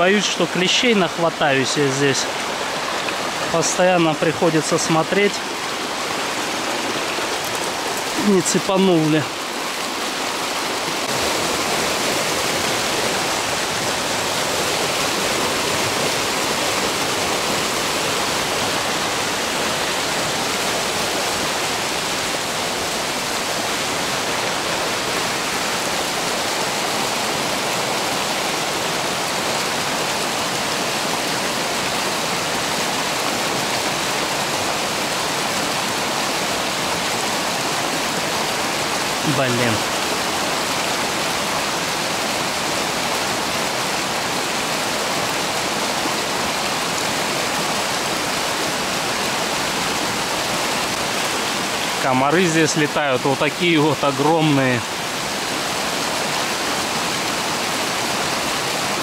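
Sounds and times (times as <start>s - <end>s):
mountain river rushing: 0.0s - 59.0s.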